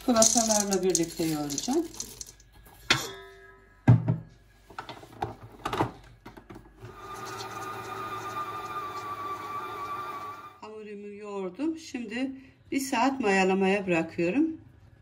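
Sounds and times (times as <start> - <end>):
stand mixer motor running: 7.0 - 10.5.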